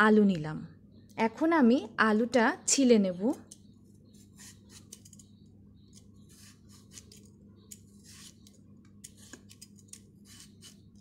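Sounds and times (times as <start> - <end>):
vegetable peeler scraping potato: 4.1 - 5.2, 6.0 - 11.0.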